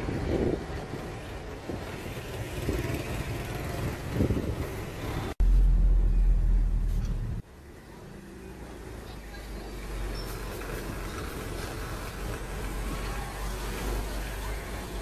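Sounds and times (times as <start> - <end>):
street traffic noise: 0.0 - 15.0
car cabin engine and road rumble: 5.4 - 7.4.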